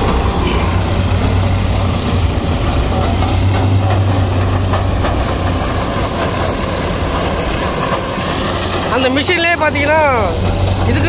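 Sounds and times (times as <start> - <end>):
low diesel engine drone: 0.0 - 11.0.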